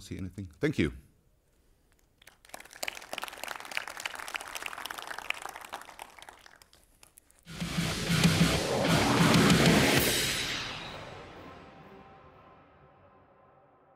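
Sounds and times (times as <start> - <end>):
audience applauding: 2.2 - 7.4
music: 7.5 - 13.9.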